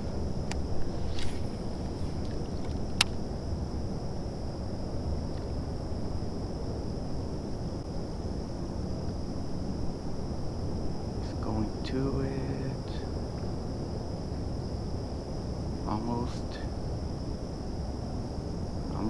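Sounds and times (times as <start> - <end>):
faint high-pitched whine: 0.0 - 19.0
wind rumble on microphone: 0.0 - 19.0.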